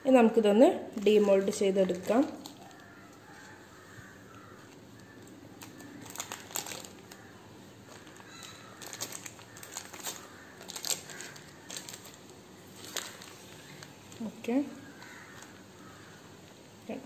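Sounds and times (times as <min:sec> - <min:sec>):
paper crinkling and rustling: 0:01.0 - 0:04.0, 0:04.6 - 0:14.3.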